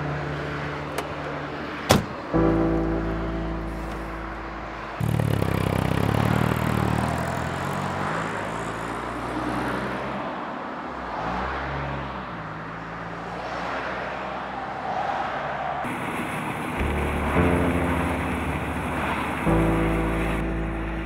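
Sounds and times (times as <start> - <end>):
loud engine hum: 0.0 - 9.9, 15.9 - 21.0
engine note rising and falling: 0.0 - 10.1, 15.9 - 21.0
cars driving on road: 0.0 - 21.0.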